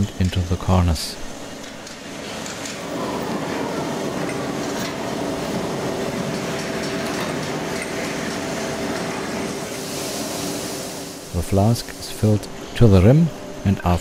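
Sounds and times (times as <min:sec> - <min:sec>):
sand dispenser machine hum: 0:00.0 - 0:14.0
sand pouring from chute: 0:09.1 - 0:12.4.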